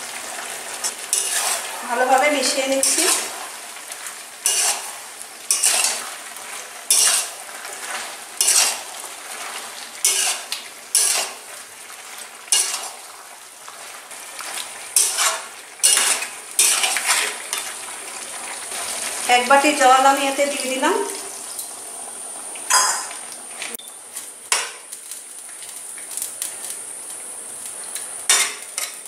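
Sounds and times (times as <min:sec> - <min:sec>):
faint sizzle: 0:00.0 - 0:29.0
metal spatula scraping a metal pan: 0:00.8 - 0:01.8, 0:02.4 - 0:03.4, 0:04.4 - 0:06.1, 0:06.9 - 0:11.5, 0:12.5 - 0:13.0, 0:14.4 - 0:17.8.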